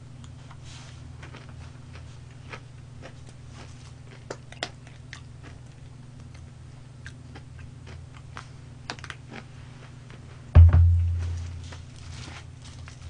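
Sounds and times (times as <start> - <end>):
low hum: 10.6 - 12.8.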